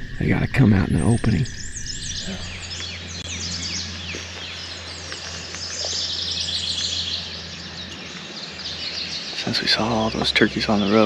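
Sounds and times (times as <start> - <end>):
high bird trill: 0.0 - 11.0
songbirds singing: 0.0 - 11.0
steady low hum: 0.0 - 11.0.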